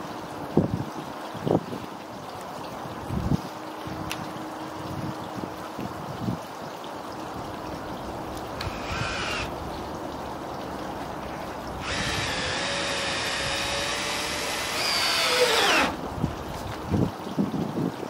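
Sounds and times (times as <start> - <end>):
water trickling: 0.0 - 18.0
cordless drill whining: 8.6 - 9.5, 11.8 - 16.0.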